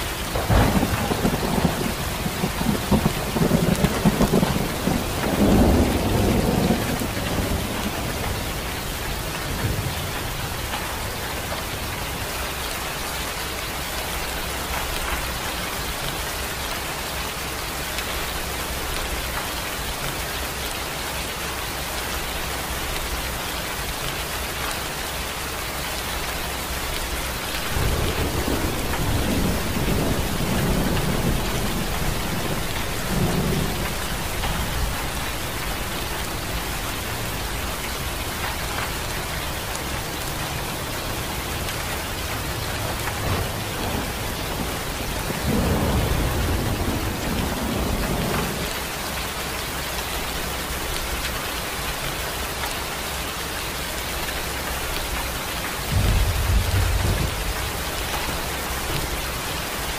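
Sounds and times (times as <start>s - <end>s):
thunder rumble: 0.0s - 11.3s, 26.7s - 48.7s, 55.8s - 59.8s
steady rain: 0.0s - 59.9s.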